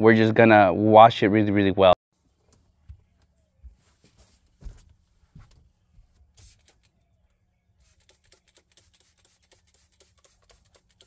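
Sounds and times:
light rapid ticks: 7.8s - 11.0s.

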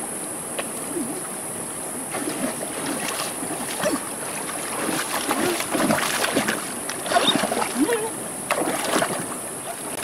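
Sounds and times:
flowing stream: 0.0s - 10.0s
water splashing from wading: 2.1s - 10.0s.

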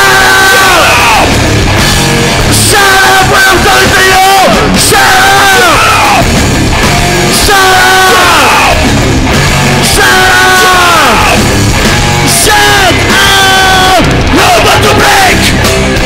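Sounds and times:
loud rock music: 0.0s - 16.0s
yelled lead vocal: 0.0s - 16.0s.

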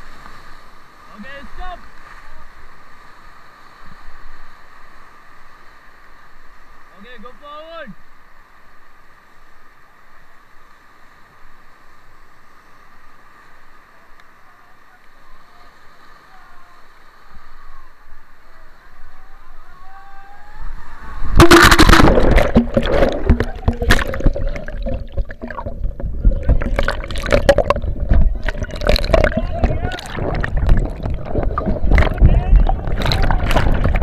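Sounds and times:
whitewater rushing: 20.7s - 34.0s
water splashing on microphone: 20.9s - 34.0s.

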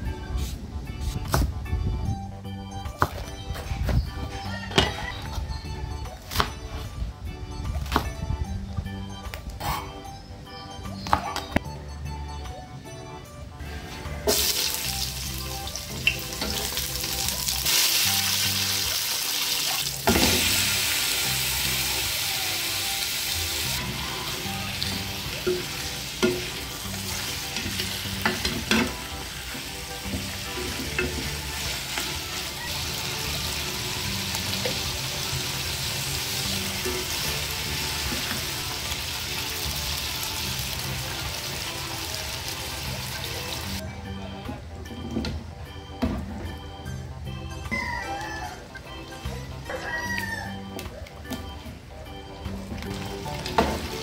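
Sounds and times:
chicken sizzling in hot oil: 14.3s - 43.8s.

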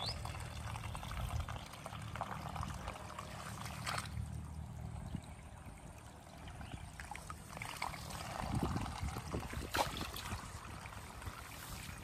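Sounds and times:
low steady rumble: 0.0s - 12.0s
fishing line swish and splash: 3.4s - 4.3s, 7.0s - 12.0s.

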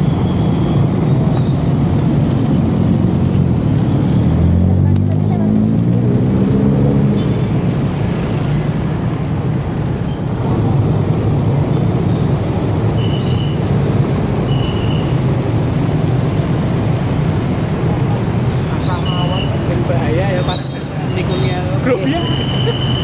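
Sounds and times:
motorcycles driving past: 1.8s - 9.4s.

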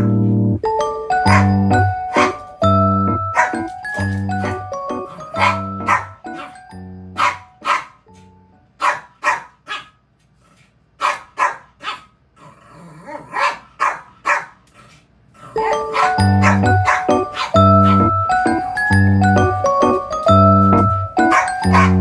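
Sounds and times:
background music: 0.0s - 8.6s, 15.6s - 22.0s
puppy barking in sharp yaps: 7.2s - 8.0s, 8.8s - 10.0s, 11.0s - 12.1s, 13.3s - 14.6s, 16.0s - 17.6s.

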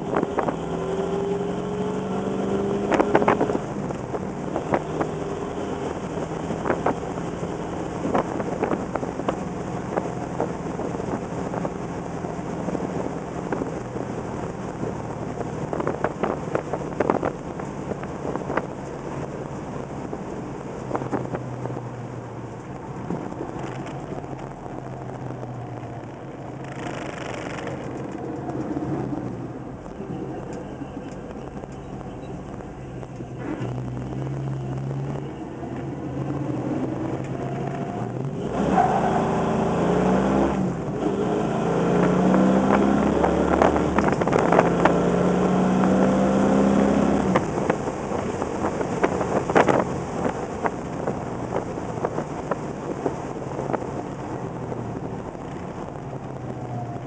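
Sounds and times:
car engine accelerating through gears: 0.0s - 57.0s.

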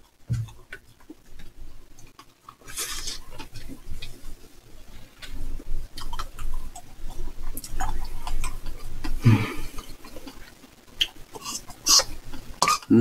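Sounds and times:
eating sounds: 0.0s - 13.0s
person humming: 9.2s - 9.8s.

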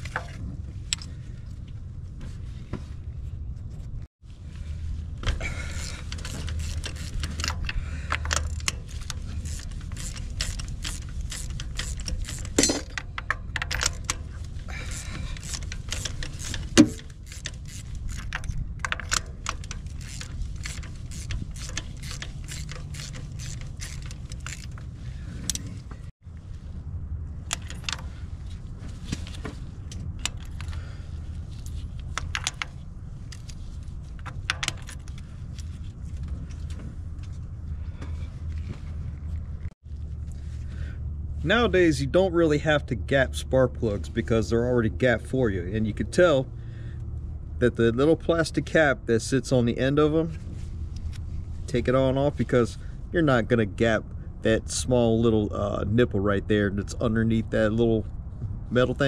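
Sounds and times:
steady low rumble: 0.0s - 59.0s
metal tools clinking: 5.4s - 25.7s
hand ratchet clicking: 5.8s - 24.8s.

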